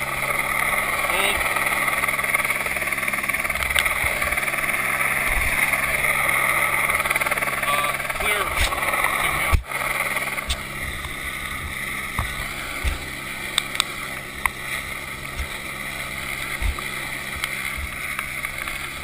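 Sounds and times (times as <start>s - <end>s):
helicopter drone overhead: 0.0s - 19.0s
wind buffeting microphone: 1.6s - 7.6s.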